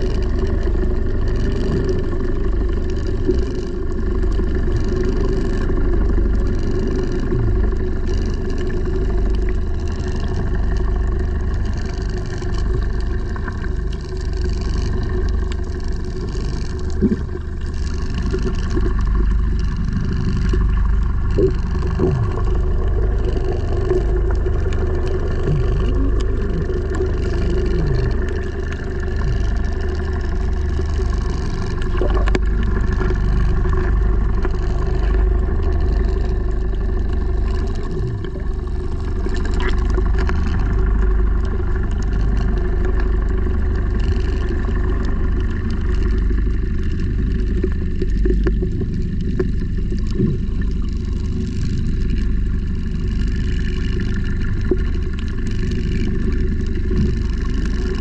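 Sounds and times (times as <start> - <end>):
underwater boat engine rumble: 0.0 - 58.0.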